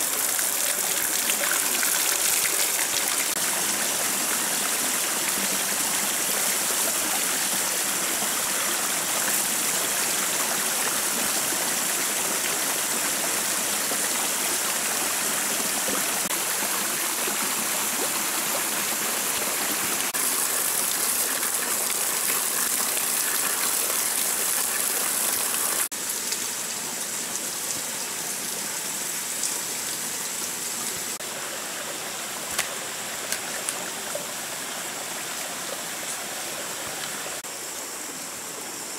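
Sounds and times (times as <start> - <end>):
forest stream running: 0.0 - 38.9.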